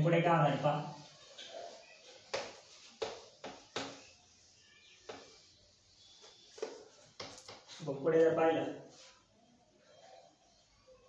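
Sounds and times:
cloth rubbing whiteboard: 0.4 - 8.0.

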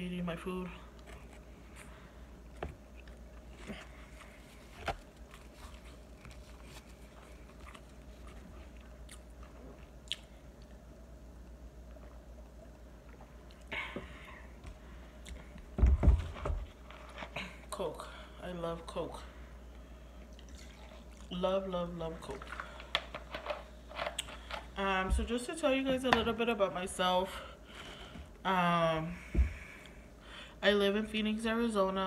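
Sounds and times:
close-up chewing of food: 1.0 - 10.8
small mouth clicks: 10.0 - 10.7.

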